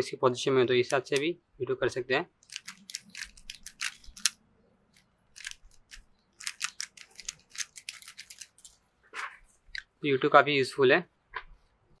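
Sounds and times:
puzzle cube clicking and clacking: 2.4s - 4.4s, 5.0s - 8.8s.

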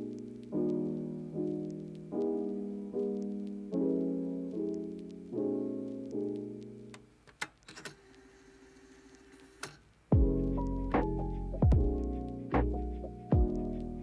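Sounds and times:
piano chords: 0.0s - 7.0s, 10.1s - 14.0s.

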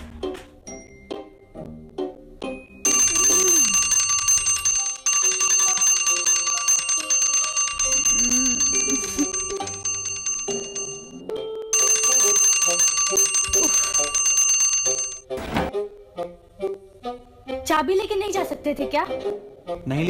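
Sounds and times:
electric doorbell ringing: 2.8s - 15.3s.

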